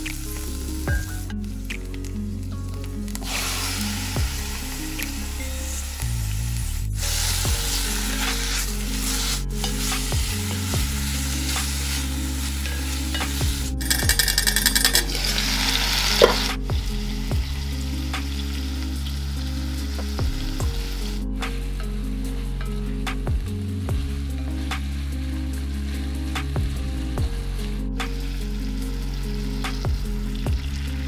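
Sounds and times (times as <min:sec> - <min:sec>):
chicken and onions sizzling: 0:00.0 - 0:31.0
metal lid clink: 0:13.2 - 0:15.1, 0:16.2 - 0:16.5.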